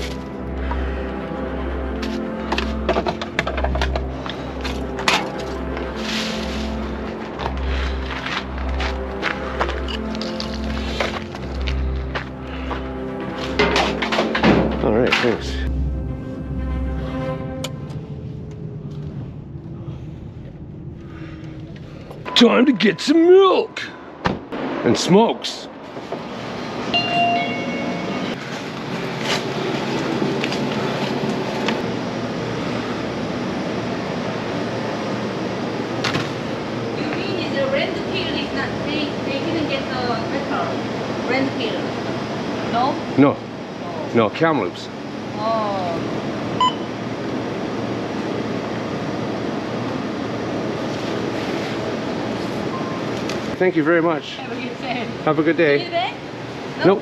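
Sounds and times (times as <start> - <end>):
refrigeration and ventilation hum: 0.0 - 57.0
steady rushing noise: 0.0 - 57.0
faint electronic beep: 46.6 - 46.9.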